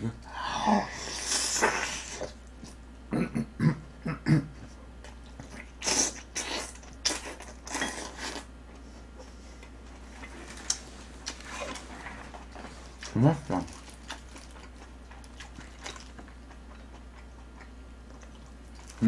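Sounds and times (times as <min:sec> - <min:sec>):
slurping and wet chewing: 0:05.1 - 0:08.5, 0:09.6 - 0:19.0.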